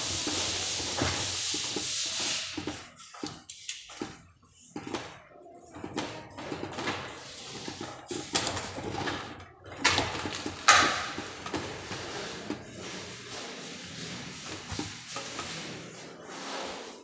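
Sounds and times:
hand tool scraping wet plaster: 0.1s - 2.6s, 11.2s - 17.0s.

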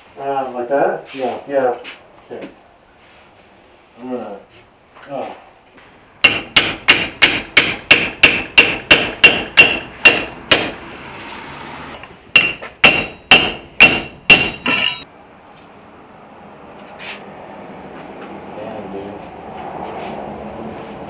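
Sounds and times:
hammer tapping on metal: 6.2s - 10.8s, 12.3s - 15.1s.

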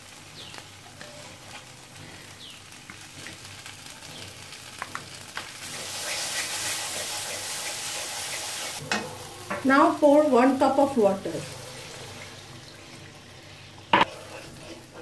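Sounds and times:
spices sizzling in a wok: 0.0s - 15.0s
wooden spatula scraping wok: 0.5s - 9.8s, 14.0s - 15.0s.

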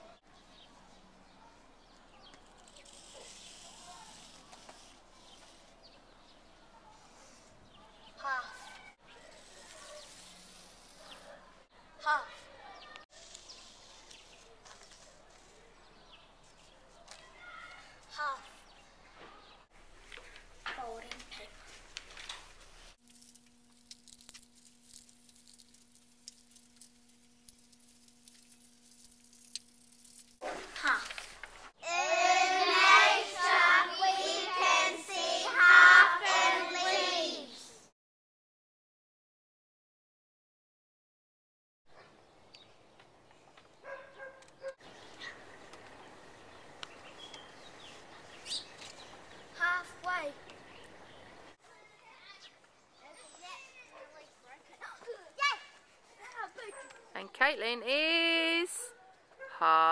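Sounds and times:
chalk scratching on asphalt: 2.2s - 6.0s, 6.9s - 11.6s, 13.1s - 16.9s
low electrical hum: 19.8s - 31.7s
paper rustling: 20.0s - 31.8s.

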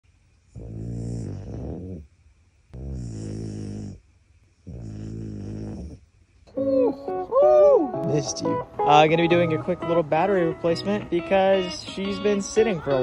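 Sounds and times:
dog snoring: 0.5s - 2.1s, 2.7s - 6.1s.

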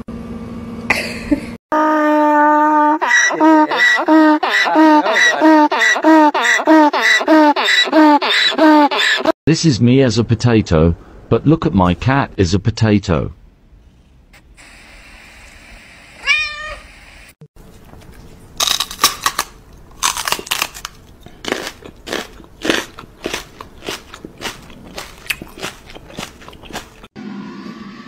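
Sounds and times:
cat meowing: 16.2s - 16.8s
sharp crunching clicks: 18.6s - 27.1s.

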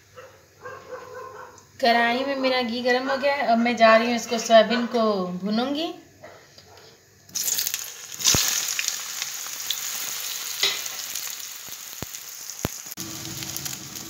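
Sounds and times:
food sizzling in hot fat: 7.3s - 14.0s.

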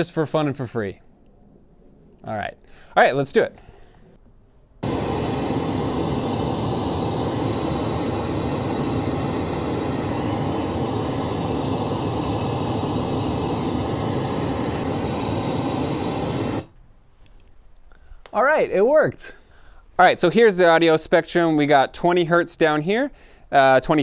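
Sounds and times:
pink noise hiss from speaker: 4.8s - 16.7s.

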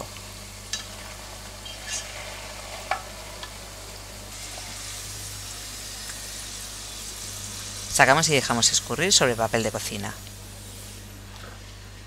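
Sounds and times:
food deep-frying in oil: 0.0s - 12.0s.

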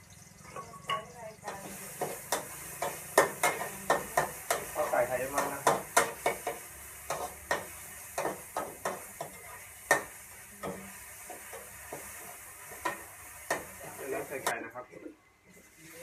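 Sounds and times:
food sizzling: 0.0s - 14.7s, 15.4s - 16.0s
metal spatula scraping a wok: 1.5s - 14.3s.

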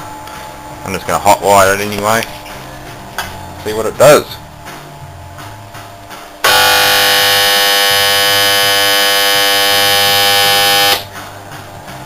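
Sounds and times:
compressor motor electric buzz: 6.4s - 11.1s.

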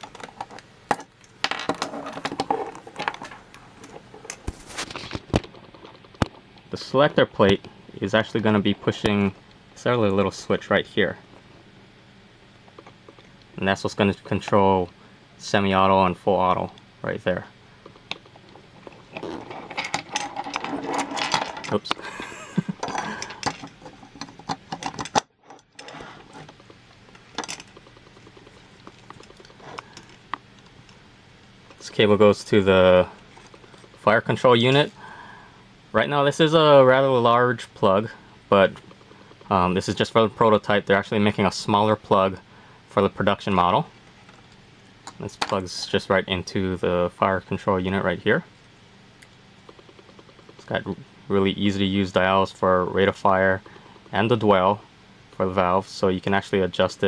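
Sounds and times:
rubbing and clatter: 18.8s - 21.8s.

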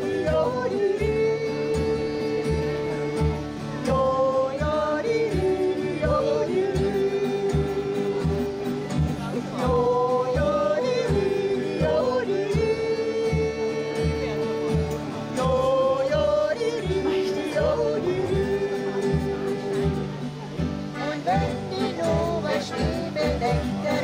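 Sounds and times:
yodelled song: 0.0s - 24.0s.

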